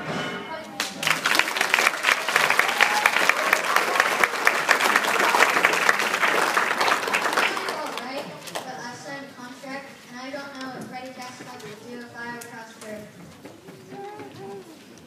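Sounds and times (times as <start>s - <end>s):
audience applauding: 0.8s - 8.6s.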